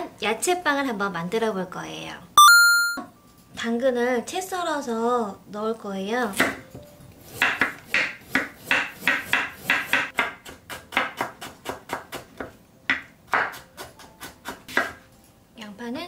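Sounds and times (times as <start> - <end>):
knife chopping on wooden board: 7.3 - 15.0.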